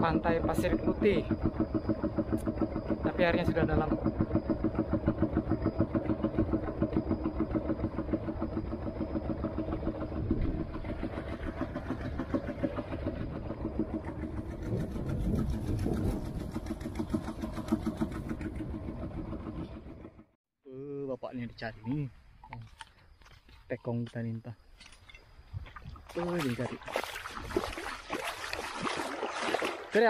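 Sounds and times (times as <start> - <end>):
boat diesel engine chugging: 0.0 - 20.4.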